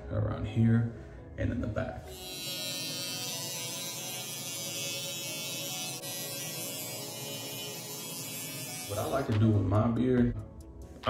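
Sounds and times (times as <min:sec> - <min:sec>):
electric hair clipper buzzing: 0:02.1 - 0:09.4.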